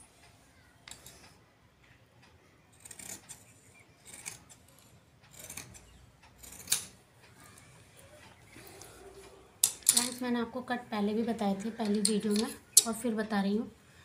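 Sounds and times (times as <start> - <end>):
scissors snipping through cloth: 5.3 - 5.8.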